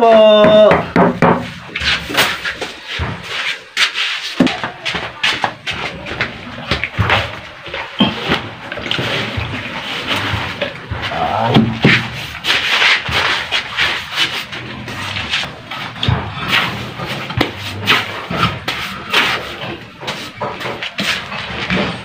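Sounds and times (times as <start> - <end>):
hand rubbing a hard surface: 8.0 - 22.0.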